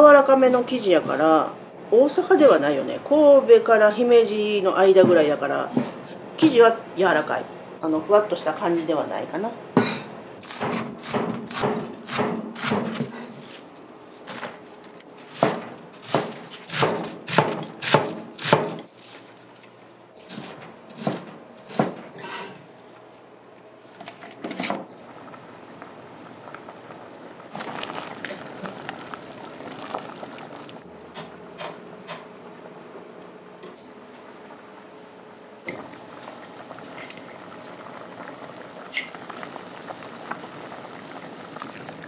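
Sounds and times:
knife chopping on cutting board: 9.8s - 13.1s, 15.3s - 18.8s, 20.3s - 22.4s.

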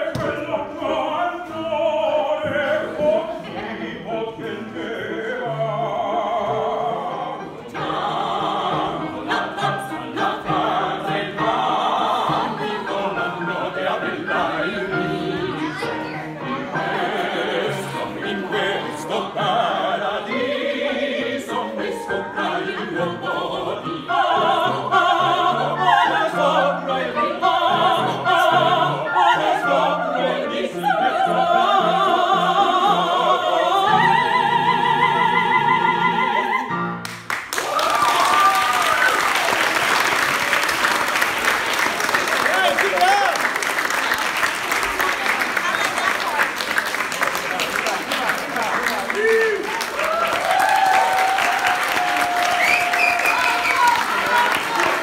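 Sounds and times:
opera singers in harmony: 0.0s - 37.0s, 49.1s - 55.0s
audience applause and cheering: 37.0s - 55.0s.

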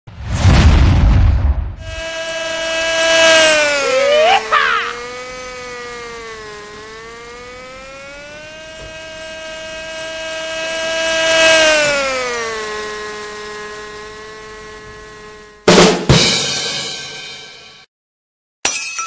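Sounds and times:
model airplane engine whining: 1.8s - 15.8s.

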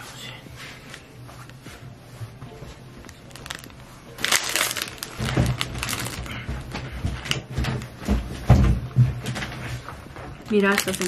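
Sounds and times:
plastic wrapping crinkling: 3.0s - 7.8s, 10.3s - 11.0s.

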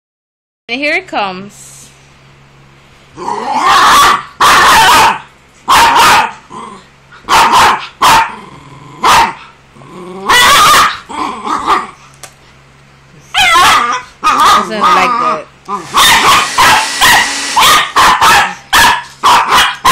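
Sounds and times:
puppy barking: 3.6s - 6.5s, 7.2s - 8.4s, 9.0s - 9.6s, 10.3s - 12.0s, 13.3s - 19.9s.

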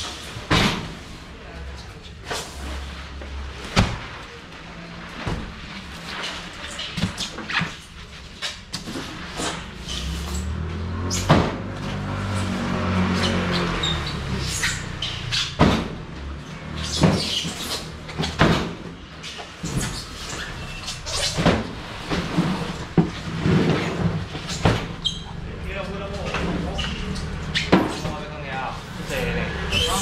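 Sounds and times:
vehicle engine rumbling: 9.2s - 19.2s, 20.3s - 30.0s.

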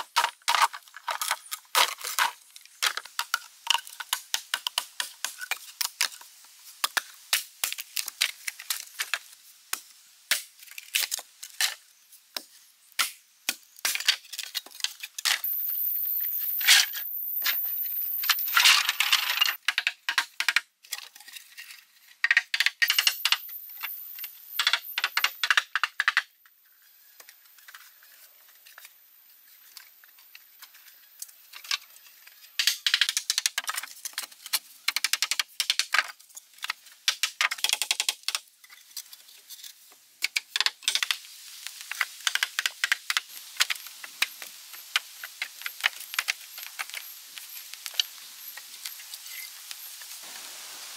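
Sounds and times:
bamboo poles clacking together: 0.0s - 11.8s, 18.5s - 23.4s, 24.6s - 26.3s, 29.8s - 49.8s
thin high whine: 15.4s - 19.6s.

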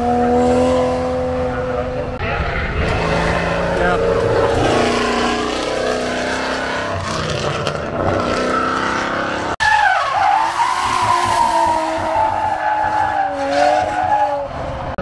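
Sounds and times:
car engine running hard: 0.0s - 9.6s.

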